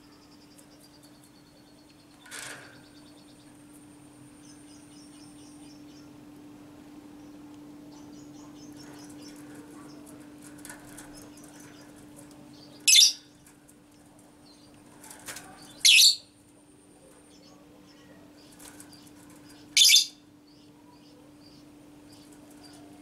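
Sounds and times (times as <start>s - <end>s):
faint bird chirps: 17.0s - 23.0s.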